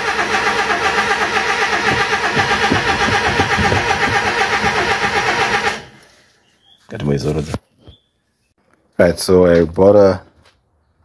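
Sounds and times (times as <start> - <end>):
starter cranking engine: 0.0 - 6.0.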